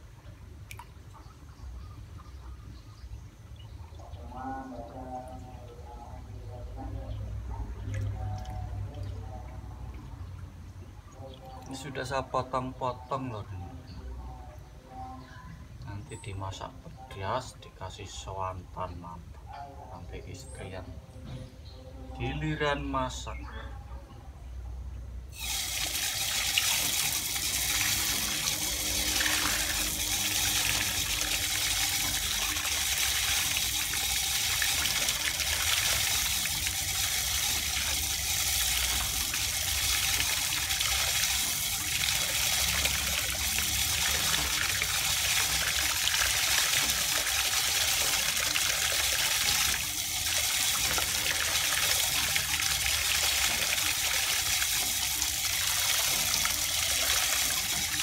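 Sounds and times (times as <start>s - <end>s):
tap water pouring into plastic basin: 25.4s - 58.0s.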